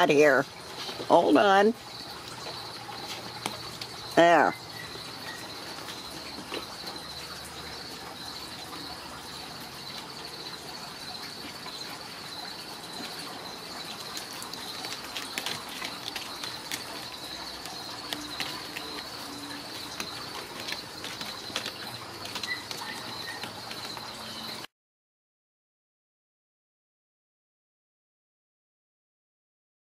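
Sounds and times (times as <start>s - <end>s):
crickets chirping: 0.0s - 24.7s
kitten clawing a post: 14.2s - 24.0s.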